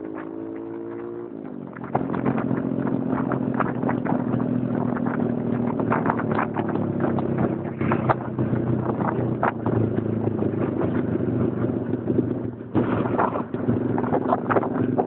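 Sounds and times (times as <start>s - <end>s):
motorcycle engine running: 0.0s - 15.0s
clicks and rattles: 1.7s - 10.1s, 12.7s - 15.0s.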